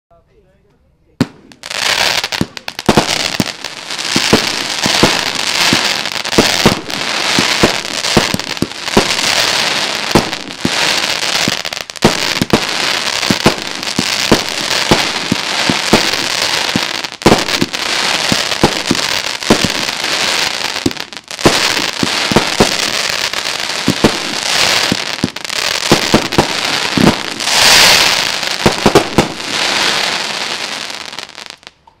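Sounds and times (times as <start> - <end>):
firework crackle: 1.2 - 31.8
firework launch thumps and bursts: 2.3 - 19.9, 23.8 - 30.4.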